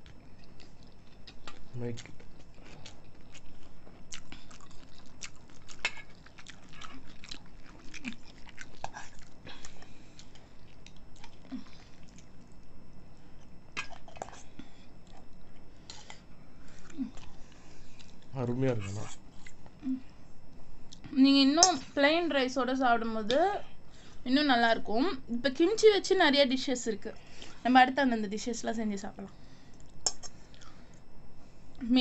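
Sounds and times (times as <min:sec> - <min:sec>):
people chewing crunchy food: 0:00.0 - 0:21.1, 0:29.6 - 0:31.1.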